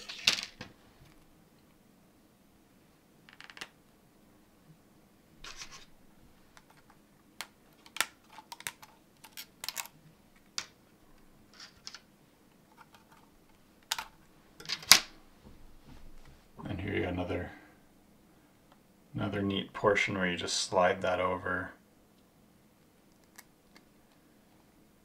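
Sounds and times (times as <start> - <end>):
plastic parts scraping: 5.4 - 5.9, 7.8 - 10.0, 12.7 - 15.0
plastic parts clicking: 6.6 - 10.0, 12.7 - 15.0.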